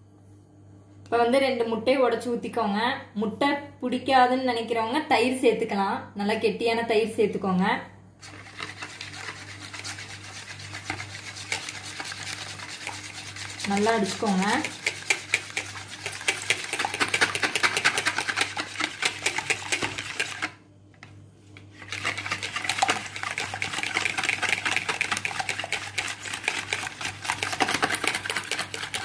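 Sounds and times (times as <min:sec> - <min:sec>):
whisk clicking against bowl: 0:08.6 - 0:20.6, 0:21.8 - 0:29.0.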